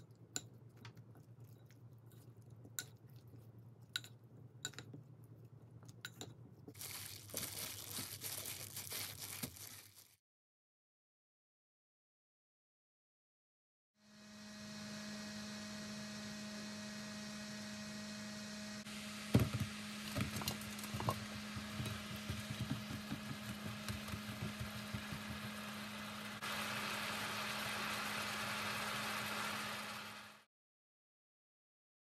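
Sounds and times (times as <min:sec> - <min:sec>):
sauce bubbling and sizzling in pan: 0:19.8 - 0:30.4.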